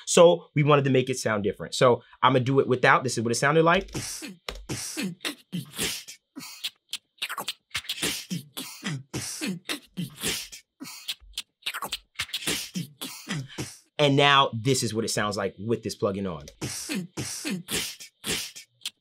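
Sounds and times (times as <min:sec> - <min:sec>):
beatbox drum pattern: 0:03.8 - 0:14.0, 0:16.4 - 0:19.0.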